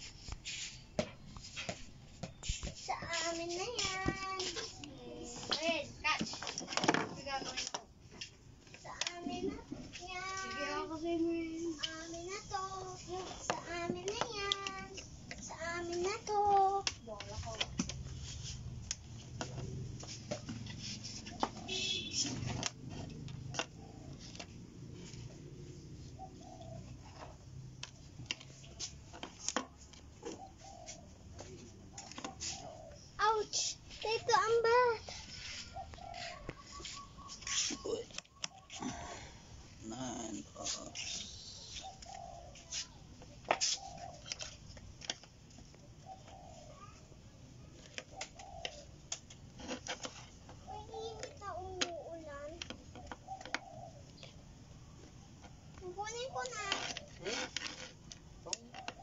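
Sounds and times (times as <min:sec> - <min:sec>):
bird cooing: 0:23.6 - 0:24.4, 0:25.4 - 0:27.4, 0:30.2 - 0:33.7, 0:35.1 - 0:39.5, 0:40.6 - 0:43.0, 0:43.6 - 0:44.6, 0:45.9 - 0:49.0, 0:50.6 - 0:54.4, 0:58.4 - 0:59.0.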